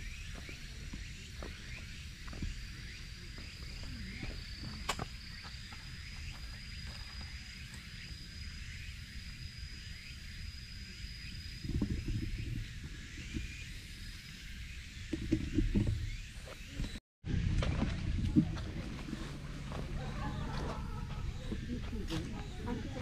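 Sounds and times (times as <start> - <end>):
insect high-pitched trill: 0.0 - 17.0
insect short chirps: 0.0 - 17.0
low outdoor rumble: 17.3 - 23.0.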